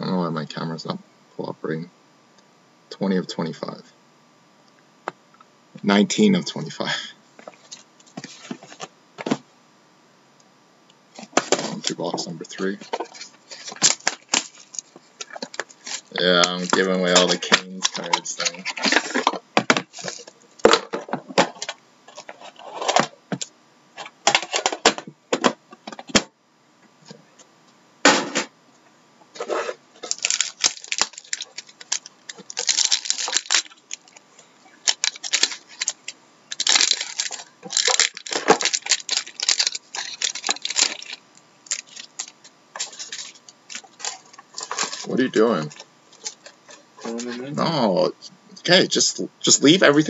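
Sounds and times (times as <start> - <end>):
plastic and foil wrapper crinkling: 11.2 - 20.7, 21.5 - 23.0, 29.4 - 47.4.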